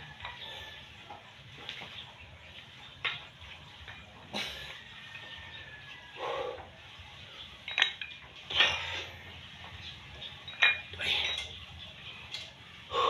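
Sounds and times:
metallic clinks of weight plates: 7.6 - 9.3, 10.2 - 11.7.

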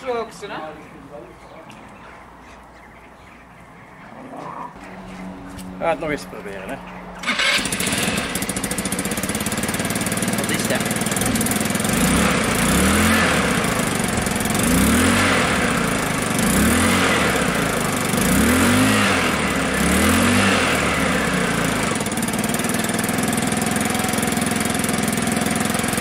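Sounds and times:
scooter engine revving and idling: 5.4 - 26.0.

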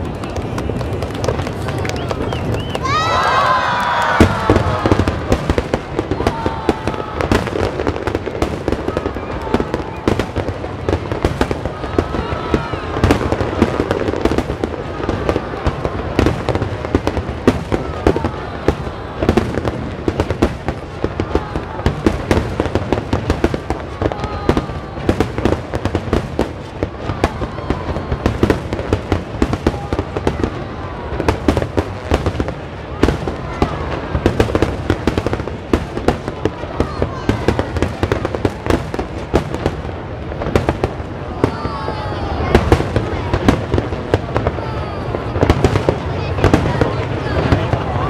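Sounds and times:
fireworks crackling and banging: 0.0 - 48.0.

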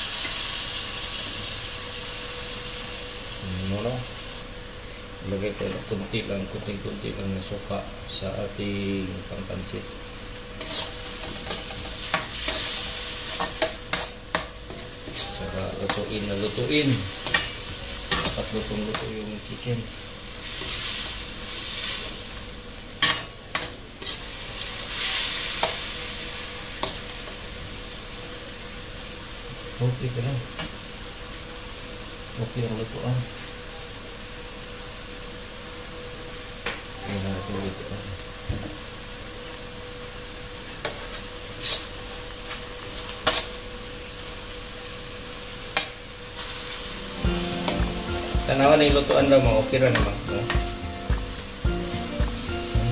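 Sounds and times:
chicken sizzling in a wok: 0.0 - 8.0, 8.6 - 52.9
faint steady hum: 0.0 - 38.3.

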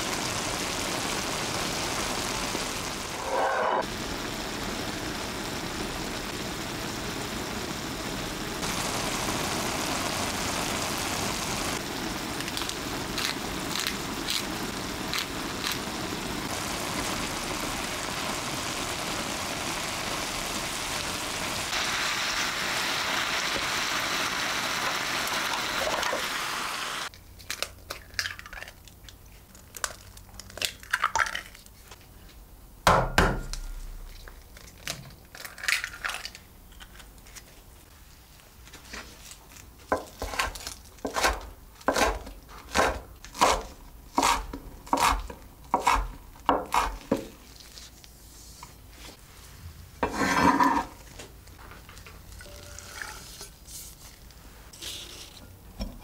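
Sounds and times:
meat sizzling in a frying pan: 0.0 - 27.1
knife chopping on a cutting board: 40.0 - 47.3
spatula stirring in a pan: 50.0 - 51.0.

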